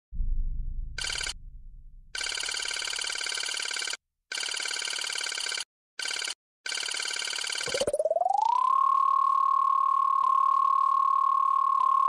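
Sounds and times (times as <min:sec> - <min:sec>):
low boom: 0:00.1 - 0:02.2
electronic beeping trill: 0:07.7 - 0:09.0.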